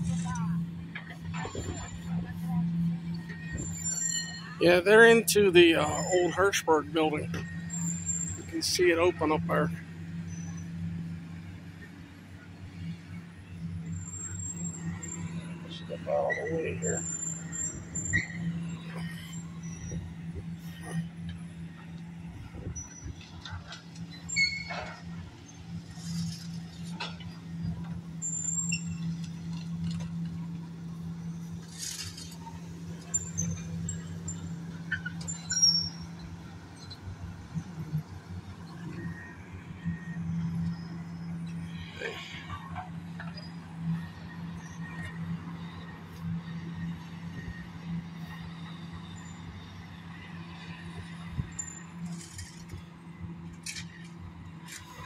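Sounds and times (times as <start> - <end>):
diesel engine running: 0.0 - 55.0
metal squeals and clinks: 1.2 - 11.0, 13.8 - 21.1, 22.7 - 30.1, 31.2 - 37.0, 51.1 - 52.8.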